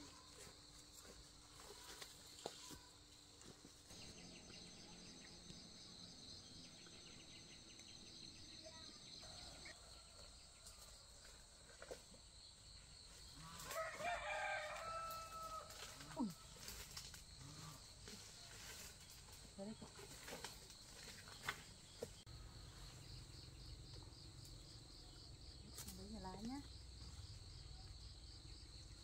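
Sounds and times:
insects chirring: 0.0 - 29.0
rooster crowing: 13.6 - 16.0.

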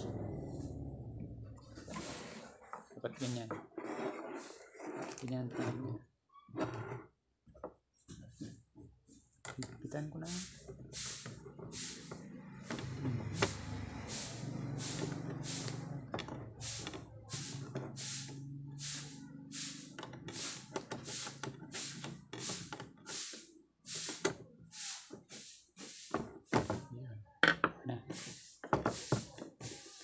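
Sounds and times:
low handling rumble: 0.0 - 1.9.

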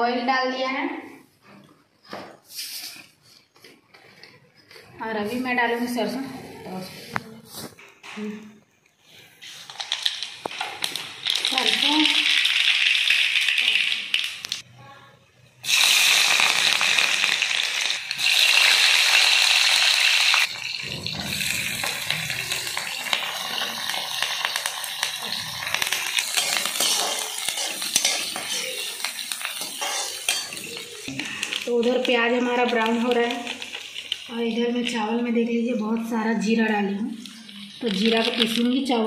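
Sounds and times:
hot oil sizzling: 9.4 - 14.6, 15.6 - 39.0
metal spoon scraping pan: 26.1 - 30.9.

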